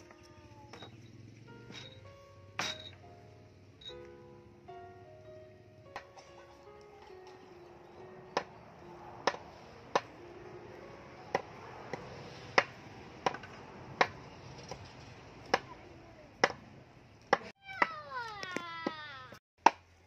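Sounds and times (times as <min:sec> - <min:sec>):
cleaver chopping on wooden board: 0:09.2 - 0:09.4.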